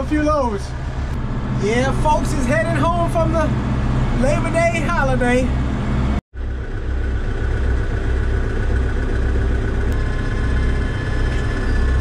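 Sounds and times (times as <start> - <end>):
tractor engine rumbling: 0.0 - 12.0
thin whine: 7.1 - 12.0.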